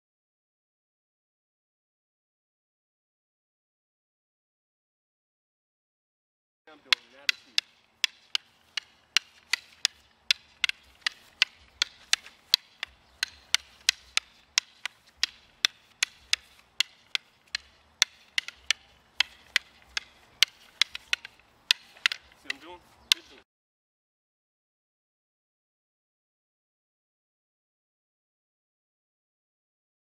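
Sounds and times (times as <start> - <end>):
training sticks clacking: 6.7 - 23.4.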